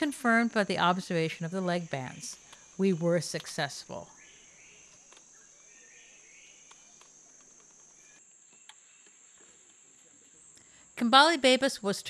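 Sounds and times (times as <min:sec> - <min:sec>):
faint chirps: 0:01.4 - 0:11.0.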